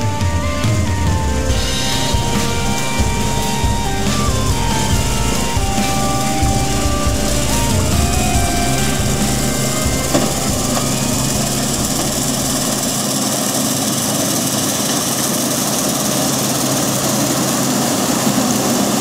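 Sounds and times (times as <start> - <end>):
background music: 0.0 - 13.2
combine harvester running: 0.2 - 18.9.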